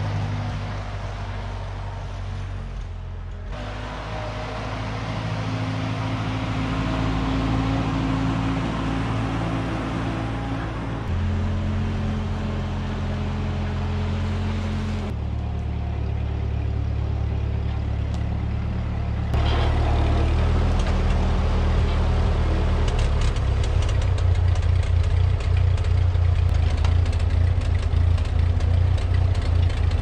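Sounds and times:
tractor engine running: 0:00.0 - 0:30.0.

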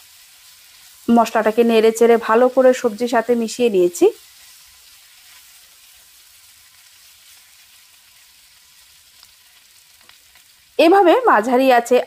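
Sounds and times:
vegetables sizzling in oil: 0:00.0 - 0:12.0
small tick: 0:10.0 - 0:10.5.

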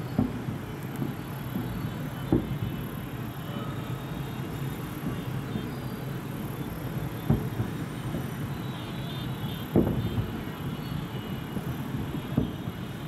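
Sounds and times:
loud firework booms: 0:00.0 - 0:03.2, 0:06.9 - 0:10.7, 0:11.4 - 0:13.0
rumble of bursting fireworks: 0:00.0 - 0:13.0.

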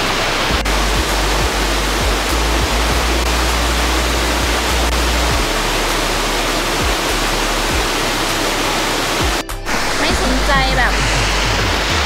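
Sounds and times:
low rumble: 0:00.0 - 0:12.0
waterfall rushing over rocks: 0:00.0 - 0:12.0.

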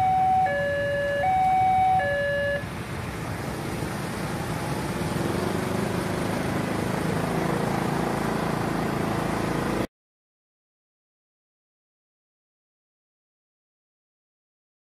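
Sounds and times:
motorcycles and scooters revving: 0:02.5 - 0:09.9.

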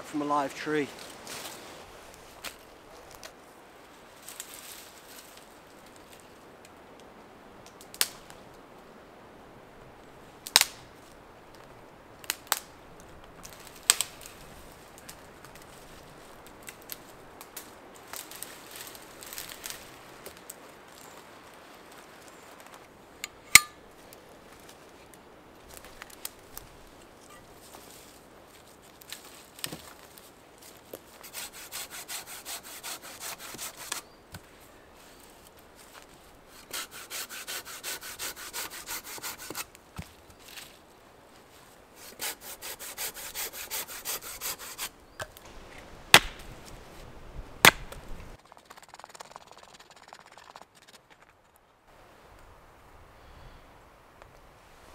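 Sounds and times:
quiet crackles of twigs: 0:00.0 - 0:08.9, 0:09.8 - 0:31.3, 0:33.9 - 0:36.6, 0:39.6 - 0:42.0, 0:45.0 - 0:52.8, 0:53.8 - 0:54.9
dead branches snapping: 0:13.4 - 0:14.4, 0:46.1 - 0:46.5, 0:47.6 - 0:48.0
hand saw cutting branch: 0:31.2 - 0:34.0, 0:36.5 - 0:39.7, 0:42.0 - 0:45.0.

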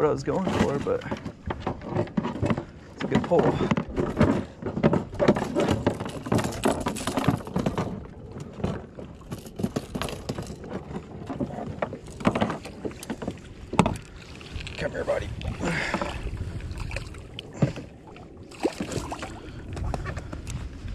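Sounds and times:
water sloshing against hull: 0:00.0 - 0:20.9
knocks on hull: 0:09.6 - 0:14.0.

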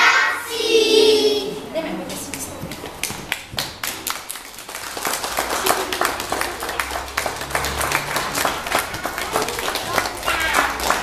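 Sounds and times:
crowd clapping: 0:02.7 - 0:11.0.

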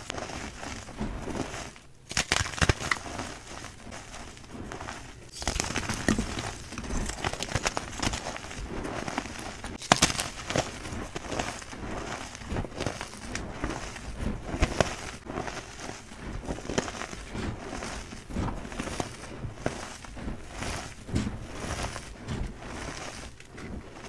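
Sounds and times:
chalk crunching in hands: 0:00.0 - 0:24.0
sharp chalk crack: 0:02.1 - 0:03.4, 0:09.7 - 0:10.7.

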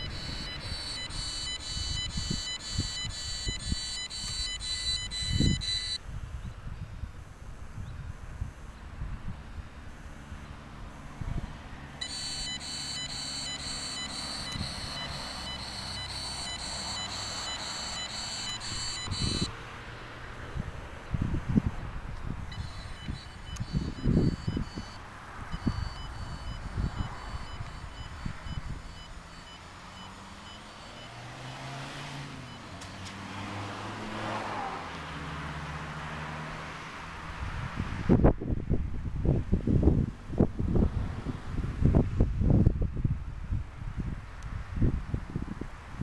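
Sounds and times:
meter beeping: 0:00.0 - 0:06.0, 0:12.0 - 0:19.5, 0:22.5 - 0:31.4
vehicle engine hum: 0:00.0 - 0:42.8
car passing: 0:22.4 - 0:38.2.

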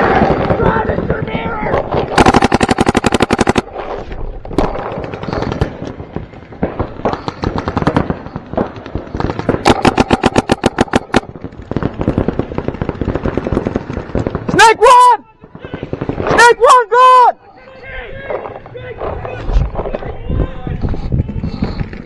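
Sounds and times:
distant scattered paintball shots: 0:00.0 - 0:14.6, 0:15.2 - 0:16.6, 0:18.2 - 0:20.1
paintball markers firing rapidly: 0:00.0 - 0:14.6, 0:15.5 - 0:16.5.

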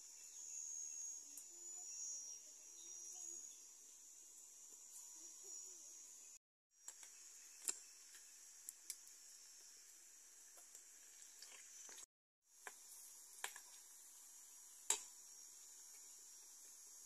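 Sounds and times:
oil sizzling: 0:06.8 - 0:17.0.

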